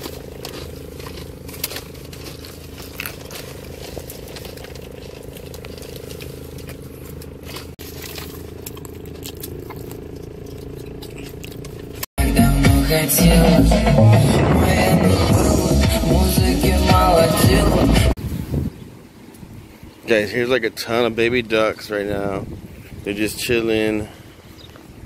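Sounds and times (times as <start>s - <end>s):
car cabin hum: 0.0s - 12.1s
paper wrapper crackling: 0.0s - 12.1s
loud hip-hop music: 12.2s - 18.1s.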